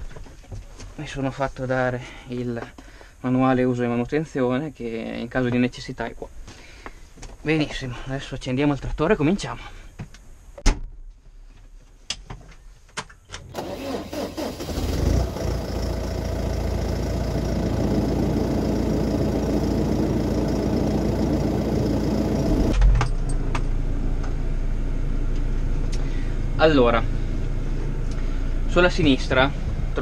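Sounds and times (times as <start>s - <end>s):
diesel engine starting and running: 13.4s - 30.0s.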